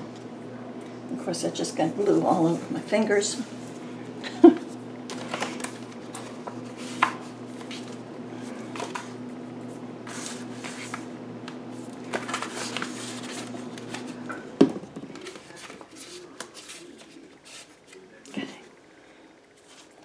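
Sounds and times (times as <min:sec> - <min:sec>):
steady low hum: 0:00.0 - 0:20.0
paper and plastic bottle rustling: 0:05.1 - 0:09.2, 0:11.7 - 0:14.3, 0:14.9 - 0:18.0.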